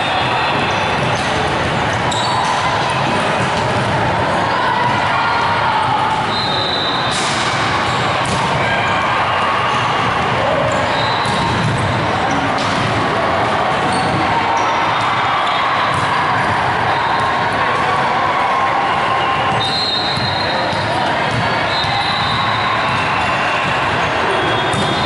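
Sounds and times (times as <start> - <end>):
shoe squeaks echoing: 0.0 - 3.6, 6.2 - 8.5, 9.3 - 12.8, 13.8 - 16.0, 19.1 - 25.0
murmur of many voices: 0.0 - 25.0
volleyballs struck and bouncing: 0.1 - 5.1, 7.0 - 8.9, 9.6 - 18.1, 19.4 - 25.0.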